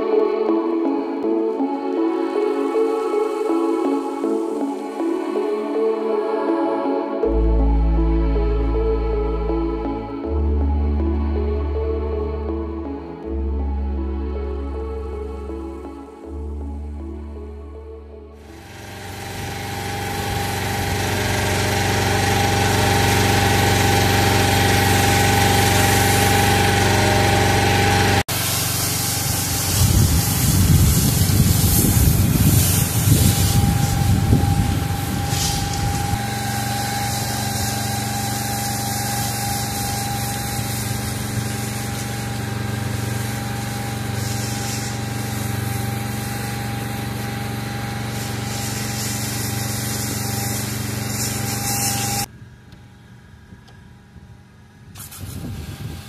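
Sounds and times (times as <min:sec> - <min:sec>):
pressure washer motor humming: 0:00.0 - 0:10.8, 0:18.4 - 0:52.3
water jet spraying concrete: 0:18.5 - 0:52.3, 0:55.0 - 0:56.0.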